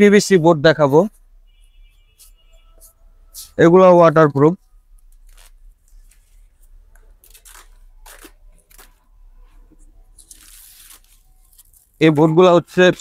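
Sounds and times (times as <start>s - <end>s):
plastic wrap crinkling: 5.0s - 9.1s, 10.1s - 12.4s.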